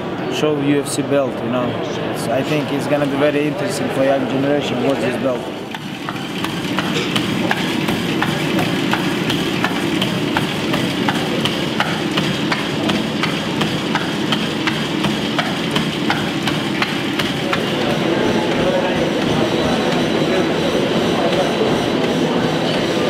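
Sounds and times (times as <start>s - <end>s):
treadmill belt and motor hum: 2.3s - 23.0s
footfalls on treadmill deck: 5.7s - 22.2s.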